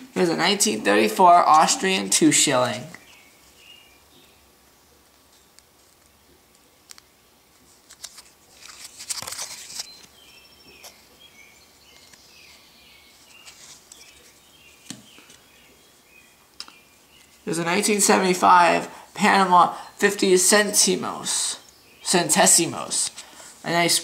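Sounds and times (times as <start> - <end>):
cardboard crinkling rustle: 7.6 - 10.2, 12.0 - 14.5.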